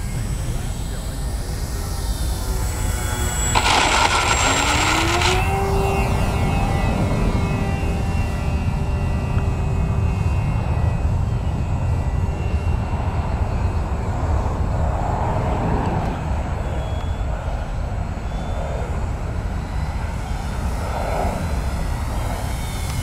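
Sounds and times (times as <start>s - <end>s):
loud steady low rumble: 0.0s - 12.1s
model plane motors whining: 0.0s - 14.6s, 16.1s - 23.0s.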